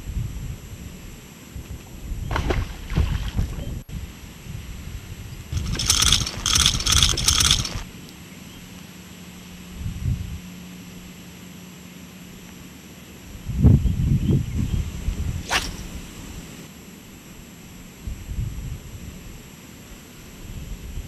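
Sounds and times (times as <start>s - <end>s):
fishing lure hooks jingling: 5.6s - 7.8s.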